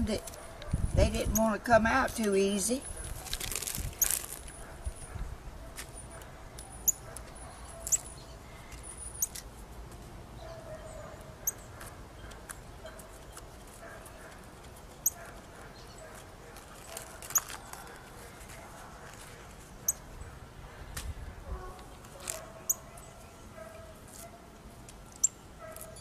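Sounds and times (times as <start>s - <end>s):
leaves peeling off cement: 2.4s - 4.6s, 16.5s - 19.7s.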